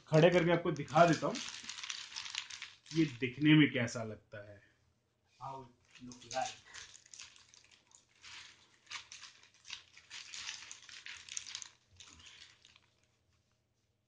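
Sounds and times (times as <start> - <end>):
plastic wrap crinkling: 0.1 - 3.5, 5.7 - 13.7.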